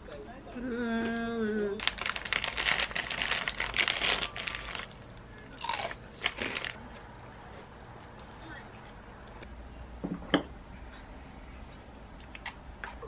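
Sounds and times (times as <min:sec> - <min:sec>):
plastic snack bag crinkling: 0:01.8 - 0:06.8.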